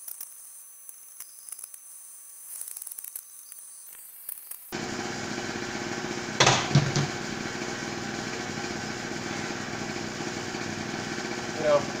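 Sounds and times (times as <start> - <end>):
small engine running: 4.7 - 12.0.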